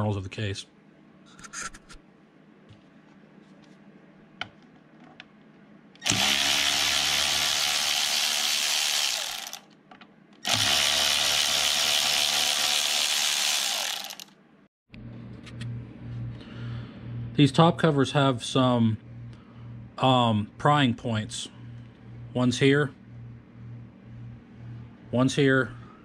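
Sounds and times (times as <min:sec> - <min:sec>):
power tool whining: 0:06.0 - 0:09.7, 0:10.4 - 0:14.3.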